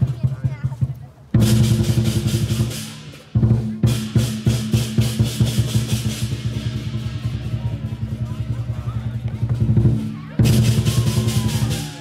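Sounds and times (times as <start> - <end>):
fast drumbeats: 0.0 - 12.0
cymbals clashing: 1.4 - 12.0.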